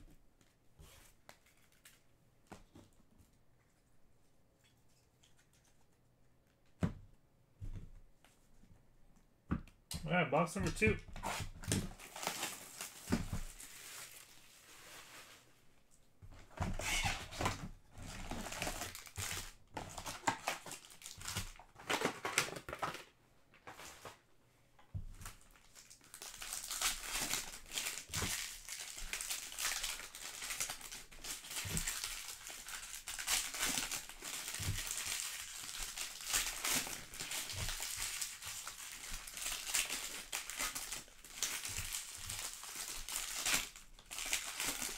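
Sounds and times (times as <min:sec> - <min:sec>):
foil wrappers crinkling and tearing: 0:10.6 - 0:15.4, 0:16.7 - 0:23.1, 0:25.2 - 0:44.9.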